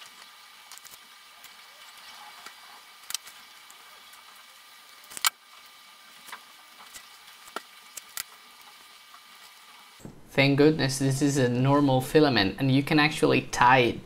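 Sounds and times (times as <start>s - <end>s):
low steady hiss: 9.8s - 14.0s.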